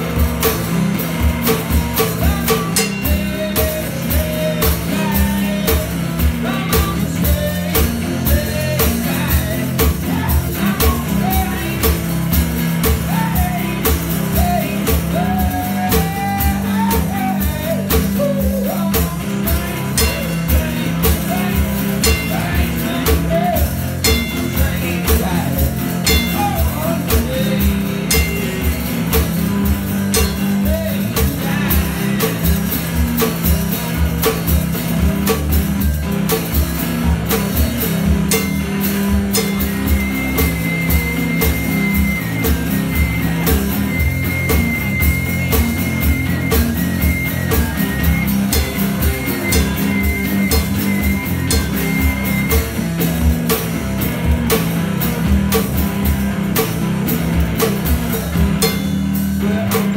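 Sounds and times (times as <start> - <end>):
guitar strumming: 0.0 - 59.9
kick drum and cymbal beat: 0.0 - 59.9
man singing: 1.5 - 34.4, 39.0 - 52.6, 59.2 - 59.9.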